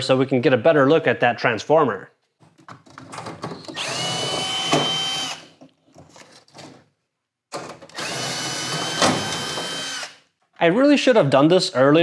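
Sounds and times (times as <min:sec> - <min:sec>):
cordless drill motor whine: 0:03.7 - 0:05.5, 0:07.9 - 0:10.2.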